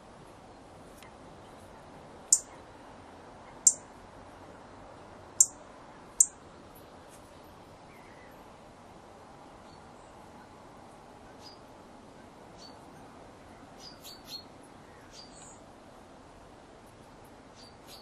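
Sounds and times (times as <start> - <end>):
faint background hiss: 0.0 - 18.0
bird ticking calls: 2.3 - 2.5, 5.4 - 5.6.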